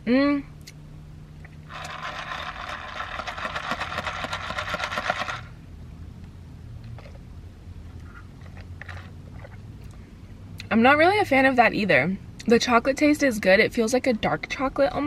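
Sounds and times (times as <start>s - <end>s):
ice rattling in a plastic cup: 1.7s - 5.5s.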